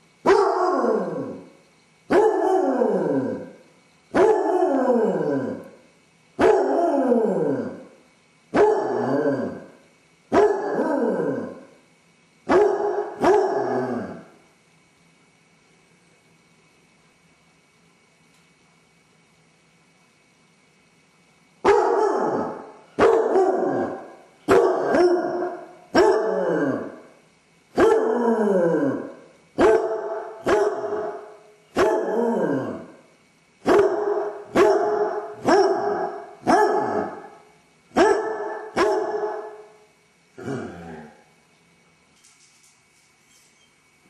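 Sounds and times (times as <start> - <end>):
dog barking: 0.2 - 0.9, 2.1 - 2.7, 4.1 - 4.7, 6.4 - 6.8, 8.5 - 9.1, 10.3 - 10.8, 12.5 - 13.8, 21.6 - 26.6, 27.8 - 28.2, 29.6 - 32.2, 33.6 - 37.4, 38.0 - 39.7.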